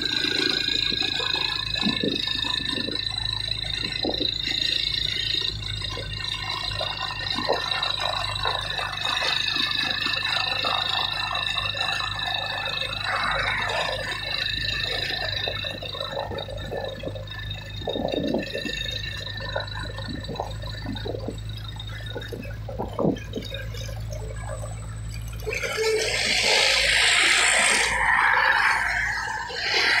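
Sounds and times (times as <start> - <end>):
truck engine hum: 0.0 - 30.0
rushing noise of passing truck: 25.5 - 30.0.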